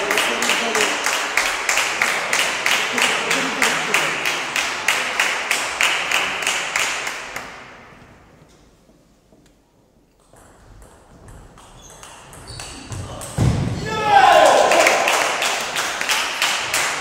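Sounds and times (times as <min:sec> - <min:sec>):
spectators clapping in rhythm: 0:00.0 - 0:07.7, 0:14.3 - 0:17.0.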